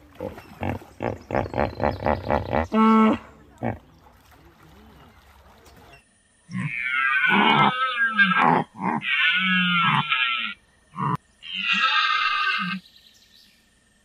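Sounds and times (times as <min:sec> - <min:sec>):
animal calling: 0:00.0 - 0:04.0, 0:06.5 - 0:12.8.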